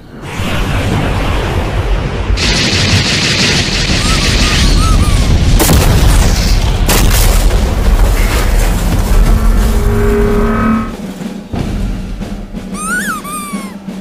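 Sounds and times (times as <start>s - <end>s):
heavy low rumble: 0.0s - 12.8s
sharp blasts: 0.2s - 9.2s
rapid gunfire: 2.4s - 8.8s.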